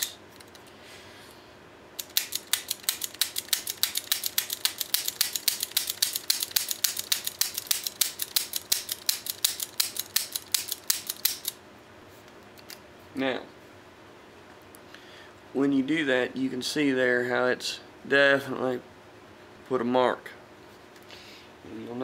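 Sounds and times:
revolver dry-fire clicks: 2.0 - 11.6.

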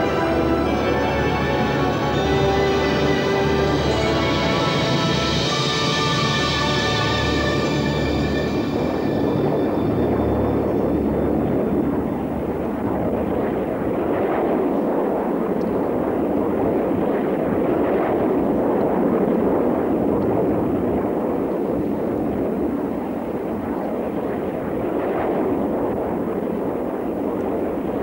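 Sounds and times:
jet engines in flight: 0.0 - 28.0.

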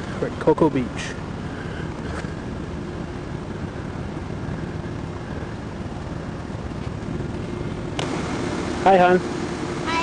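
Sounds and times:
faint steady hum: 0.0 - 10.0
traffic rumble: 0.0 - 10.0.

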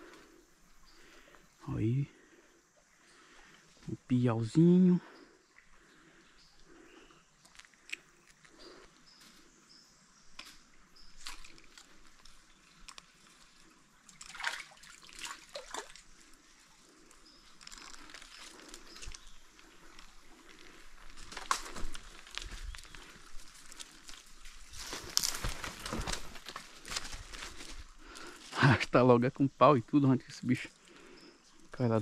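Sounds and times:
faint forest background: 0.0 - 32.0
rustling through undergrowth: 7.5 - 28.8.

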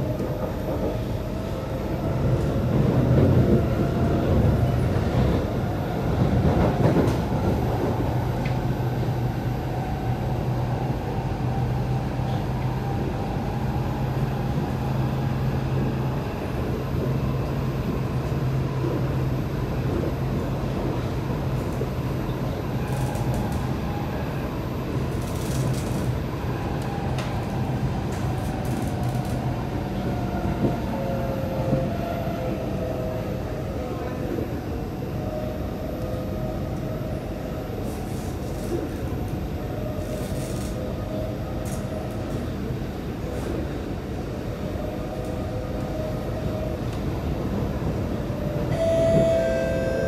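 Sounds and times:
train wheels rumbling on rail: 0.0 - 50.0
train motor whine: 48.7 - 50.0.

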